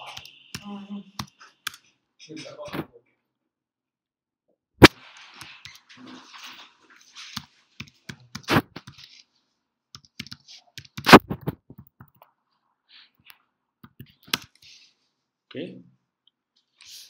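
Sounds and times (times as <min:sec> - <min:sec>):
computer keyboard typing: 0:00.0 - 0:01.8, 0:07.3 - 0:09.2, 0:10.0 - 0:12.3, 0:13.8 - 0:14.6.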